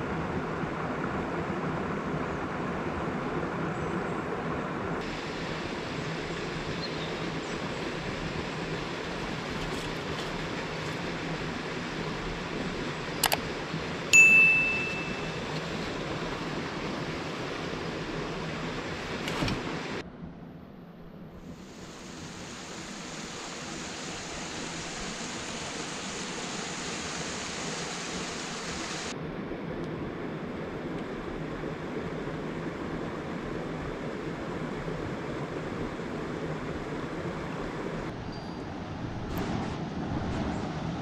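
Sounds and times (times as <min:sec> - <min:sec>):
river water over rocks: 0:00.1 - 0:20.0, 0:21.5 - 0:29.1
metallic ding: 0:14.2 - 0:15.4.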